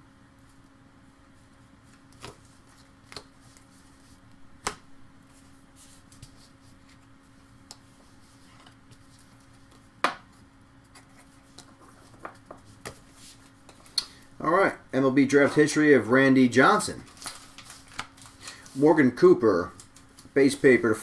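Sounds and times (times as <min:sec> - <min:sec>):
faint steady hum: 0:00.0 - 0:21.0
card rustling: 0:16.6 - 0:18.9.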